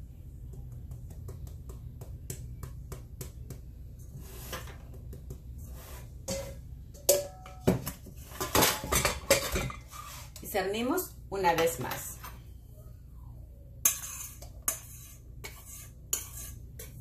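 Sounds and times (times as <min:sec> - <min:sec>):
sieve clinking on steel bowl: 0:06.3 - 0:09.8.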